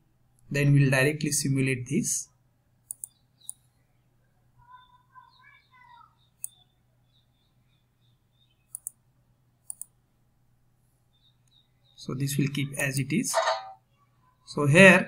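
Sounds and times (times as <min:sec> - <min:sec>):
computer mouse button clicks: 0:02.9 - 0:03.6, 0:08.7 - 0:09.0, 0:09.7 - 0:09.9.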